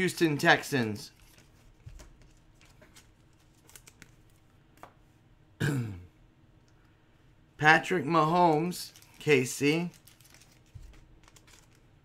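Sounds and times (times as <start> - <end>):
cards clicking and rustling: 1.2 - 4.9, 8.9 - 11.8.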